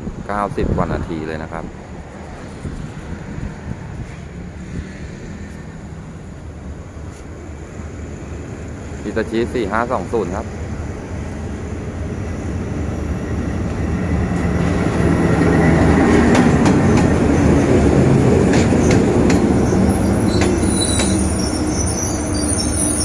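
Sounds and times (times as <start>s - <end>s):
train passing slowly: 0.0s - 23.0s
faint high wheel squeal: 19.6s - 23.0s.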